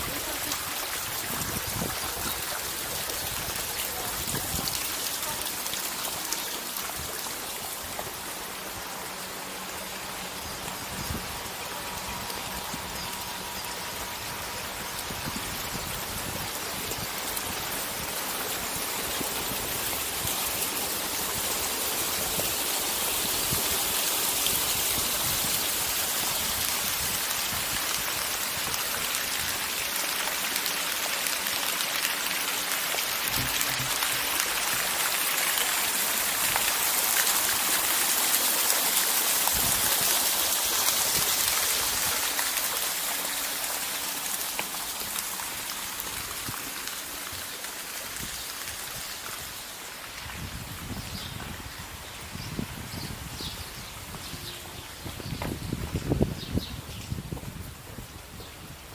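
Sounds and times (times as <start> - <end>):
running splashing water: 0.0 - 58.9.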